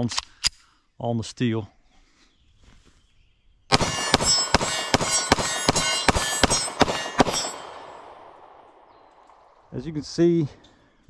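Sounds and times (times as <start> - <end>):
steel targets ringing: 3.7 - 9.6
pistol shots: 3.7 - 9.7.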